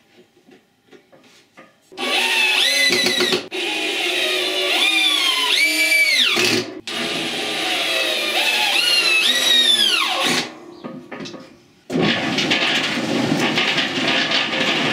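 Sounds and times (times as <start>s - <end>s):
cordless drill motor whining: 2.0s - 10.4s.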